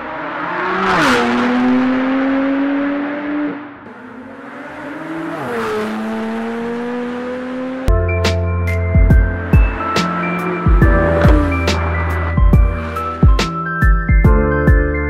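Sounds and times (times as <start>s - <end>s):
car passing by: 0.0s - 7.9s, 9.5s - 13.4s.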